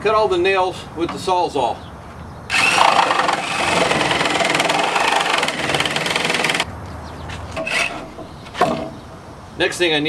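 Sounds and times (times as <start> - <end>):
reciprocating saw cutting nails: 2.5 - 6.6, 7.6 - 8.1.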